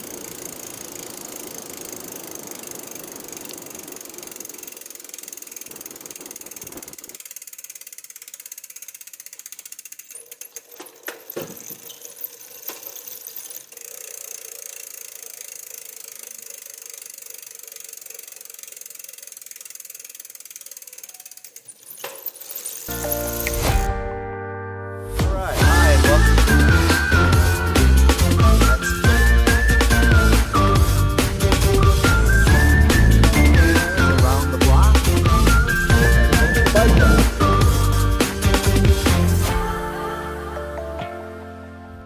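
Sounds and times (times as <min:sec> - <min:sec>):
bicycle knocks and rattles: 0:00.0 - 0:23.5
bicycle freewheel ticking: 0:00.0 - 0:23.9, 0:25.6 - 0:39.8.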